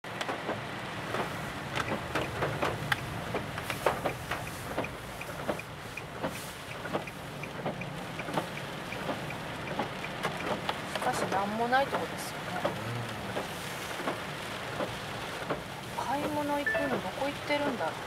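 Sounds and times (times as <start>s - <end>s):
engine and road hum: 0.0s - 18.0s
rain tapping on car roof: 0.1s - 18.0s
windshield wipers swishing: 0.2s - 18.0s.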